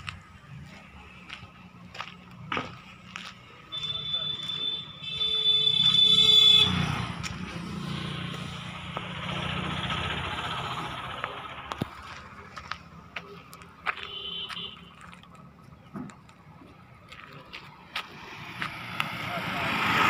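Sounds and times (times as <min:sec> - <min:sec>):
vehicle engine running: 0:05.6 - 0:14.4.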